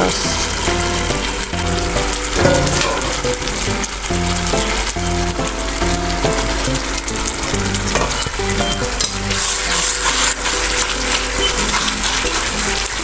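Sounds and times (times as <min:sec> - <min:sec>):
meat sizzling in a pan: 0:00.0 - 0:13.0
metal spatula scraping a pan: 0:09.3 - 0:13.0.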